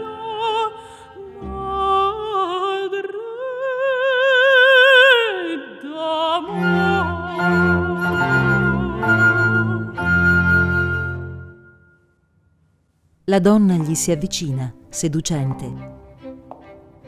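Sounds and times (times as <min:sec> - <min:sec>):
woman singing opera: 0:00.0 - 0:11.0
string ensemble bowed bass: 0:06.5 - 0:11.6.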